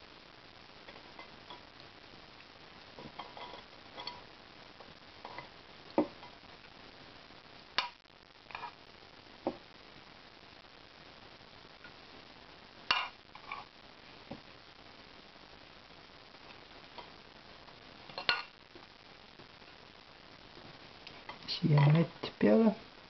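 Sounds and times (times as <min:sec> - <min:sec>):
metal spoon scraping a frying pan: 0:03.1 - 0:04.3.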